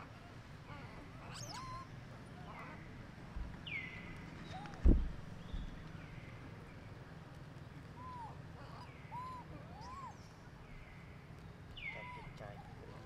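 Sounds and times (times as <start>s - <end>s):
squeaky monkey calls: 0.8s - 1.9s, 8.0s - 10.2s, 11.9s - 12.8s.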